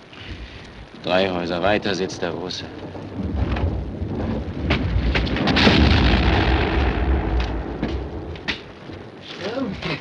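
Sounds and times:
explosions rumbling: 0:00.2 - 0:09.2
sharp cracks of shellfire: 0:04.6 - 0:08.8.

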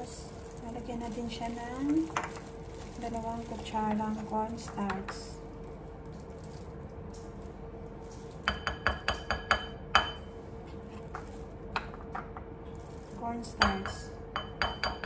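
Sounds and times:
spoon tapping glass bowl: 0:08.4 - 0:10.3, 0:13.6 - 0:15.0.

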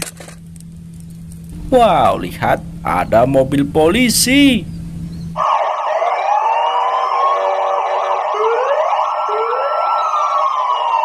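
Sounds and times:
police sirens wailing: 0:05.4 - 0:11.0.

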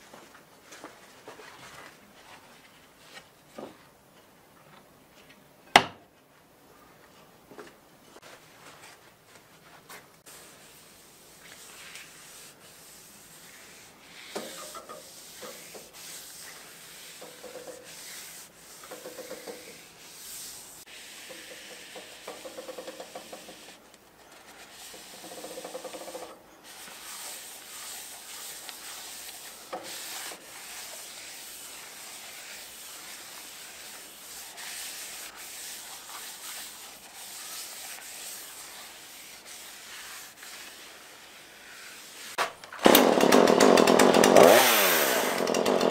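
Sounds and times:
paper towel rubbing on wood: 0:10.2 - 0:42.4.

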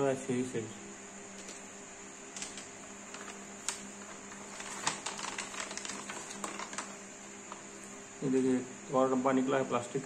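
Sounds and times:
faint steady hum: 0:00.0 - 0:10.0
plastic pouch crinkling: 0:03.1 - 0:07.0.

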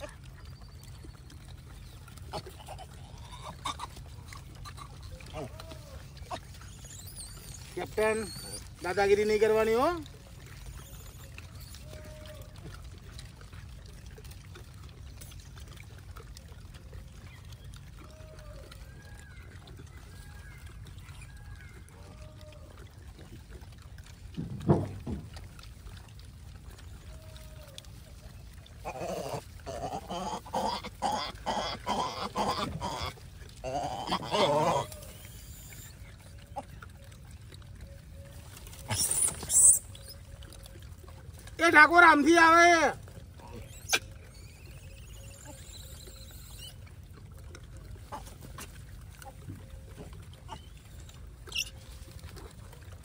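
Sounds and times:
monkeys calling harshly: 0:02.3 - 0:08.8, 0:28.8 - 0:35.9, 0:38.8 - 0:40.2, 0:43.5 - 0:46.7, 0:51.5 - 0:51.8.

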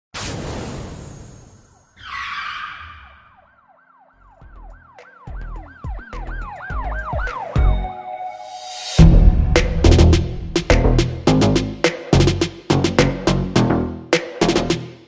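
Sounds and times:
siren-like wail: 0:01.7 - 0:09.0
whoosh: 0:08.5 - 0:11.3
deep bass hits: 0:09.0 - 0:13.8.

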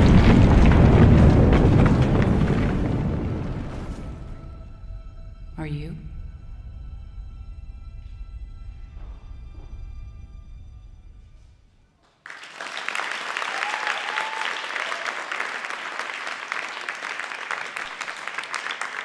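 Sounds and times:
audience applause: 0:00.0 - 0:03.2, 0:12.0 - 0:19.0.

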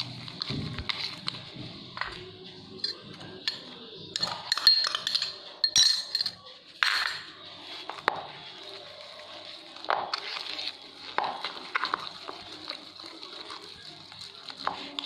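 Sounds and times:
whisk scraping plastic bowl: 0:07.6 - 0:15.0.

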